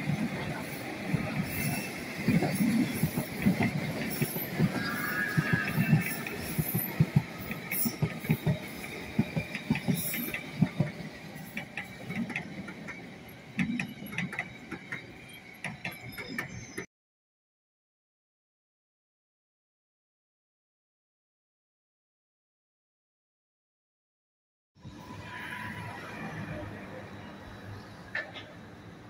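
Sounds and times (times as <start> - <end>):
train rumble: 0.0 - 16.8
train wheels clacking over rail joints: 1.1 - 16.8.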